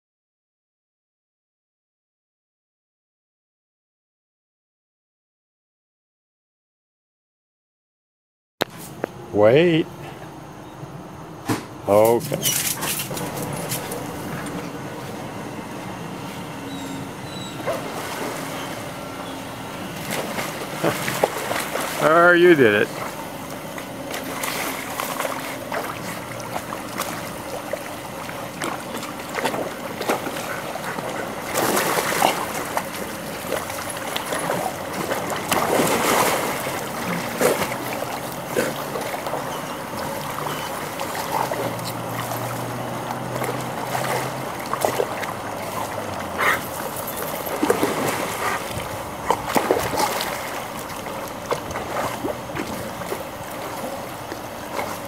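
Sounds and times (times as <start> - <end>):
dogs splashing in water: 12.1 - 55.0.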